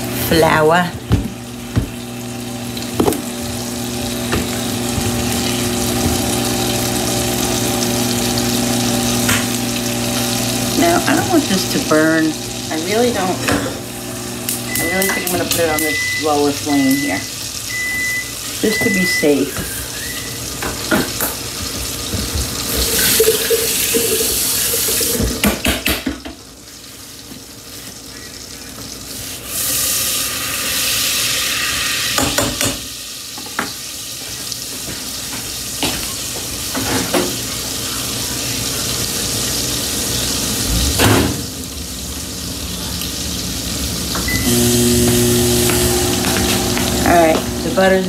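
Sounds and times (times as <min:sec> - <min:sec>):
pots and utensils clinking: 0:19.6 - 0:26.2
hissing on stove: 0:29.1 - 0:32.2, 0:42.2 - 0:48.0.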